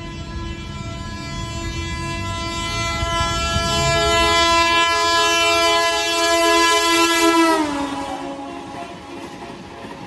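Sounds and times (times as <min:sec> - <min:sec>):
train air horn: 0:00.0 - 0:09.0
train wheels rumbling on track: 0:00.0 - 0:10.0.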